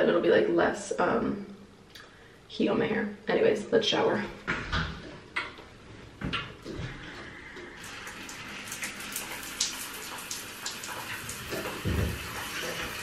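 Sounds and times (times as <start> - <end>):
shower water spray hissing: 7.6 - 13.0.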